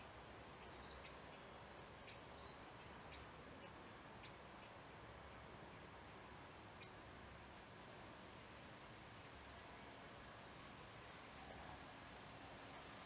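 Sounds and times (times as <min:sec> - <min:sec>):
background hiss: 0:00.0 - 0:13.0.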